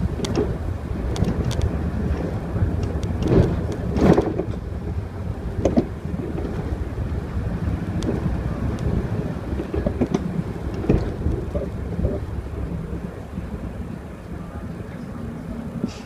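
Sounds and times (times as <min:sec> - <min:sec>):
bus bumps: 0:00.0 - 0:16.0
bus engine and road rumble: 0:00.0 - 0:16.0
light rattles and clicks: 0:00.2 - 0:06.8, 0:07.8 - 0:12.3.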